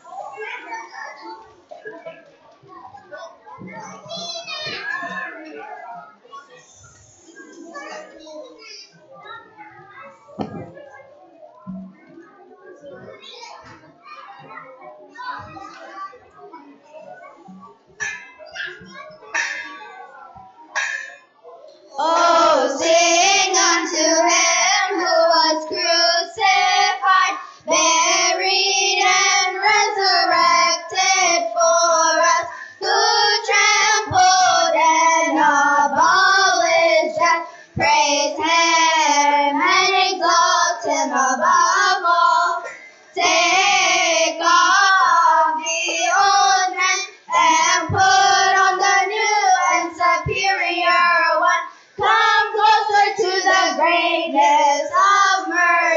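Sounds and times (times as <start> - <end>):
children's choir singing: 20.8 - 21.2, 21.9 - 55.9.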